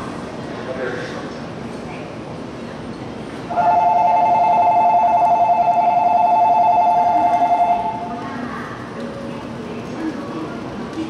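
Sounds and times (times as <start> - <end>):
electronic two-tone bell trilling: 3.5 - 8.1.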